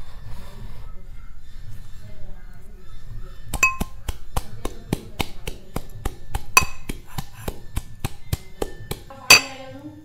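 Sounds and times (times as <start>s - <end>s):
metal pestle pounding in metal cup: 3.6s - 4.0s, 6.6s - 7.0s, 9.3s - 9.6s.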